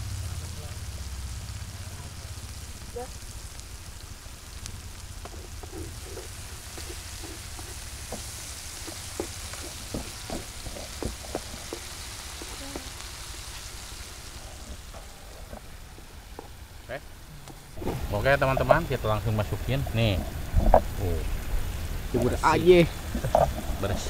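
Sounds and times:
paste sizzling in frying pan: 0.0 - 24.0
spatula scraping pan: 5.2 - 13.6, 22.1 - 24.0.

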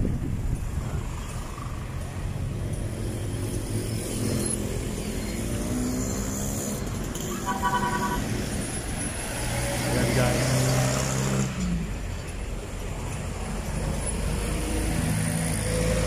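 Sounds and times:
passing vehicle engines: 0.0 - 16.0
short steady tone: 7.3 - 8.3.

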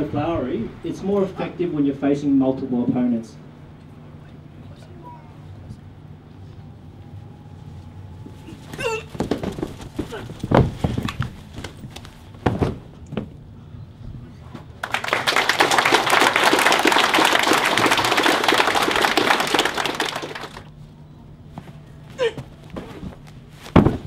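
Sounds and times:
short thuds: 8.2 - 14.7, 21.5 - 24.0
audience clapping: 14.8 - 20.7.

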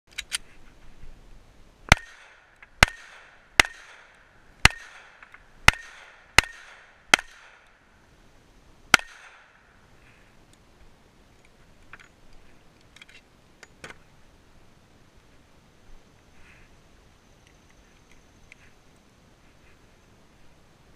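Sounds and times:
pistol shots with echo: 1.9 - 7.7, 8.9 - 9.6.

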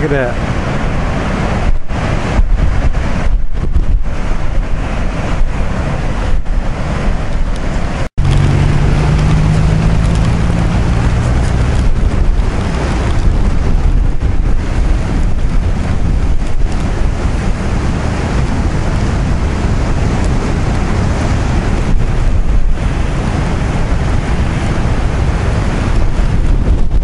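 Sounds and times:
surf breaking on rocks: 0.0 - 27.0
wind buffeting microphone: 0.0 - 27.0
low hum: 7.4 - 17.3.

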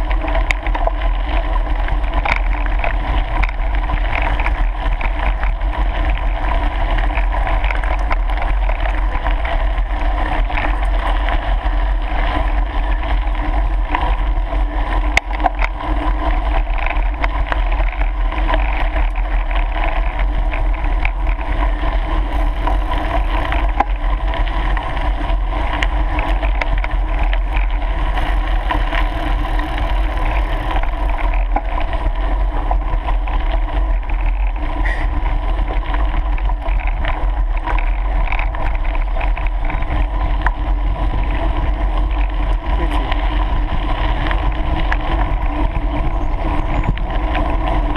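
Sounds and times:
wind rushing on microphone: 0.0 - 47.9
tyres rattling on gravel: 18.4 - 33.2.

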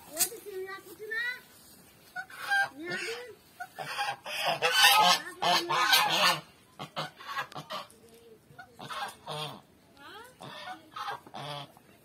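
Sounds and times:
geese honking: 2.1 - 7.9, 8.6 - 9.7, 10.4 - 11.8.

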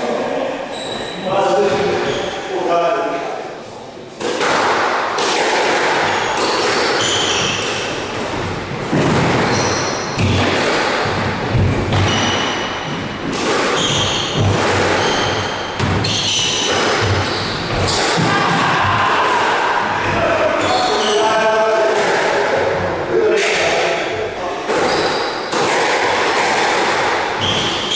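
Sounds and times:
shoes squeaking on wooden floor: 0.7 - 2.4, 6.2 - 7.6, 9.4 - 10.4, 11.9 - 18.1, 27.4 - 27.9
squash ball hitting rackets and walls: 4.2 - 27.9.

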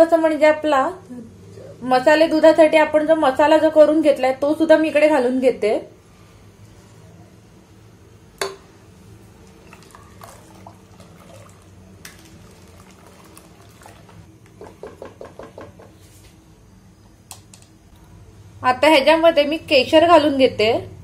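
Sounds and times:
spatula knocking against pot: 14.6 - 16.0.

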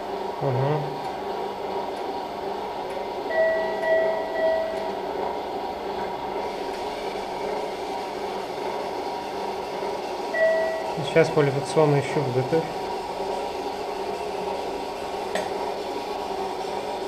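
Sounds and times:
equipment hum: 0.0 - 17.0
electronic beep tone: 3.3 - 5.0, 10.4 - 11.0.

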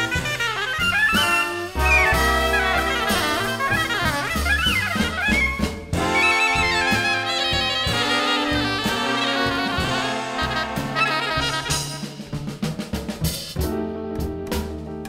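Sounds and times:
saxophone: 0.0 - 12.3
trumpet: 0.0 - 12.5
drum kit: 0.0 - 15.0
upright bass: 0.0 - 15.0.

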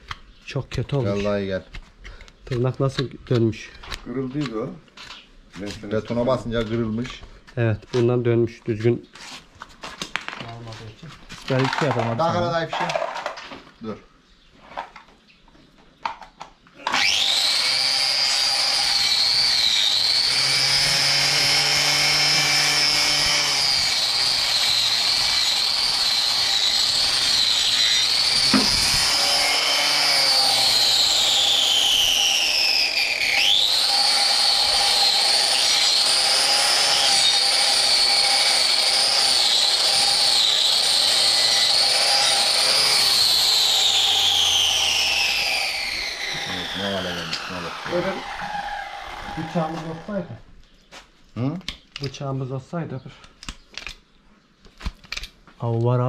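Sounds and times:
angle grinder whining: 16.8 - 50.5.

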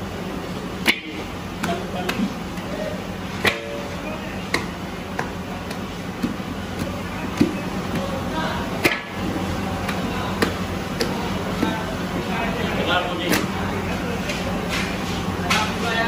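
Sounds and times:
steady low hum: 0.0 - 16.0
sweet dough slapped against pan: 0.8 - 2.7, 3.4 - 3.8, 4.5 - 8.1, 8.8 - 9.2, 9.8 - 11.8.

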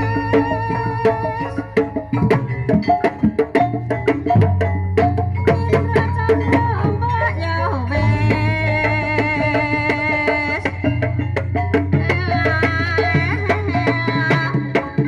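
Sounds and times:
low held tones: 0.0 - 14.2
wavering melody line: 0.0 - 14.6
drums and struck percussion: 0.0 - 15.0.

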